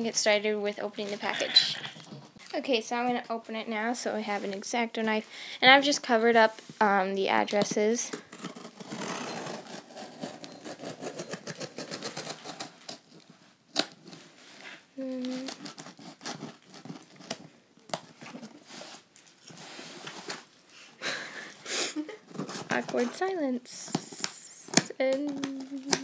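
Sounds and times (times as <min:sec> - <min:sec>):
knife slitting packing tape: 0:08.3 - 0:13.1, 0:15.2 - 0:17.4.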